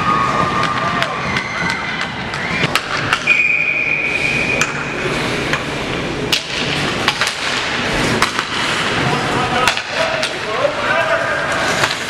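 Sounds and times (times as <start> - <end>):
noisy background: 0.0 - 12.0.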